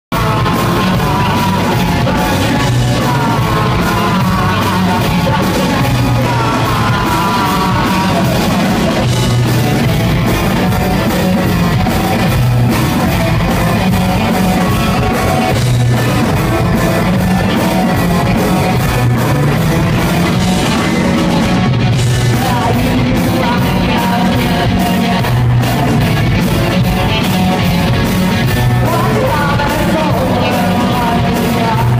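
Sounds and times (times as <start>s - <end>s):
man singing: 0.1s - 9.6s, 22.0s - 26.0s, 28.7s - 31.9s
drums: 0.1s - 31.9s
electric guitar: 0.1s - 31.9s.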